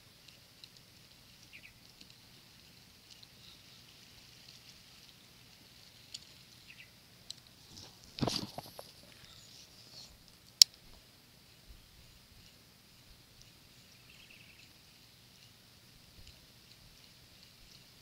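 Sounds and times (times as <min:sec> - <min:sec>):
faint outdoor background: 0:00.0 - 0:18.0
fishing rod rustle: 0:00.2 - 0:06.7, 0:07.3 - 0:11.6.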